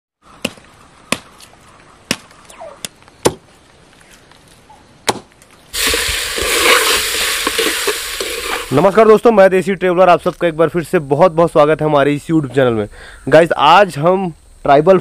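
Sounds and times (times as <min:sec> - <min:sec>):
knife chopping on wood: 0:05.1 - 0:05.3
chicken sizzling in a pot: 0:05.7 - 0:09.2
metal spoon stirring: 0:05.8 - 0:08.8.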